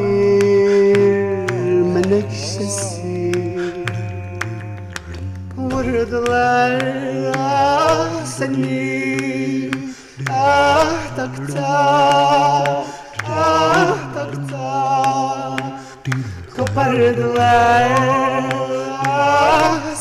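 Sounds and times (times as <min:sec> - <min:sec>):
man singing with vibrato: 0:00.0 - 0:20.0
backing music: 0:13.1 - 0:20.0.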